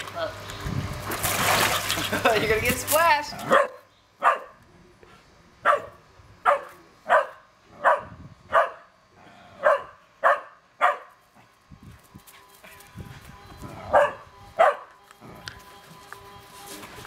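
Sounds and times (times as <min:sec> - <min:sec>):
small dog barking: 0:03.4 - 0:04.6, 0:05.6 - 0:08.9, 0:09.6 - 0:11.2, 0:13.9 - 0:14.9.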